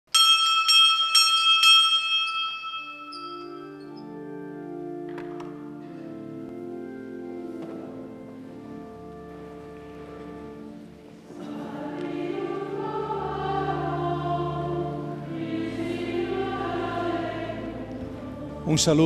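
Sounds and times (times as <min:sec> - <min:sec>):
held instrumental chords: 0:01.1 - 0:19.0
choir singing a hymn: 0:03.8 - 0:19.0.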